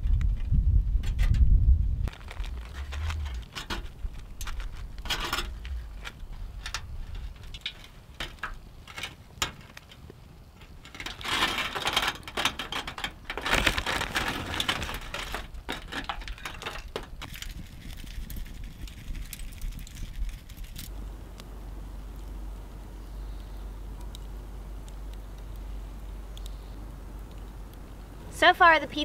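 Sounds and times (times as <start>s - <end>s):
plastic bag rustling: 2.0s - 8.1s, 11.2s - 17.8s
aluminium foil crinkling: 2.0s - 21.0s.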